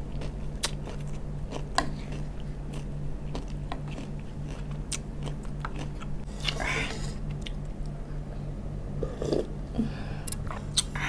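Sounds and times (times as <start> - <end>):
chewing and crunching vegetables: 0.0 - 7.8
steady low hum: 0.0 - 11.0.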